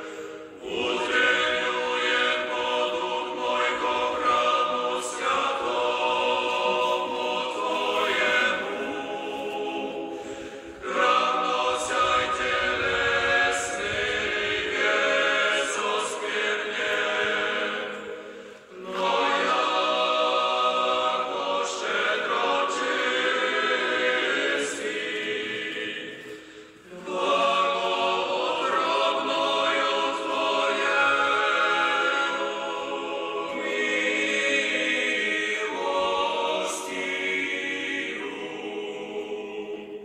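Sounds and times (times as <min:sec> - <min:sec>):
a cappella choir singing: 0:00.0 - 0:40.0.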